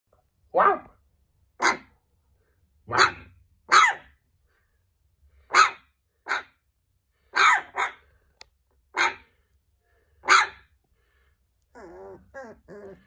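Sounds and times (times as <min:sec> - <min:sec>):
puppy barking: 0:00.5 - 0:01.0, 0:01.6 - 0:02.0, 0:02.9 - 0:04.2, 0:05.5 - 0:06.6, 0:07.3 - 0:08.1, 0:08.9 - 0:09.3, 0:10.2 - 0:10.7.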